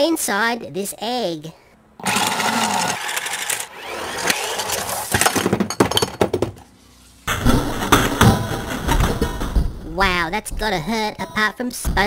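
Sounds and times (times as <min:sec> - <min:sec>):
toy car crashing: 0:02.0 - 0:06.7, 0:07.3 - 0:09.7
clattering knocks and breaking: 0:05.1 - 0:06.7, 0:07.3 - 0:11.0.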